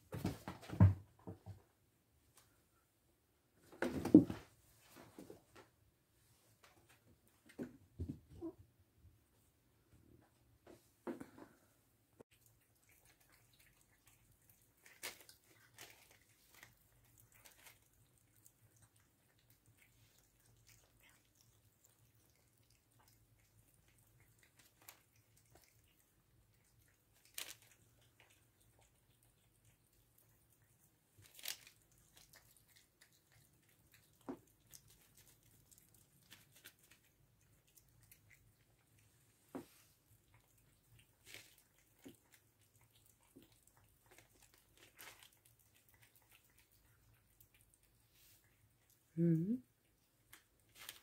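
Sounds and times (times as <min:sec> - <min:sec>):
cats chewing food: 0:11.2 - 0:51.0.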